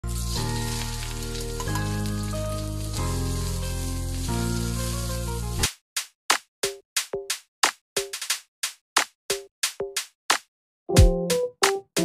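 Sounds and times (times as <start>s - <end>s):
onions sizzling in a pan: 0.0s - 5.6s.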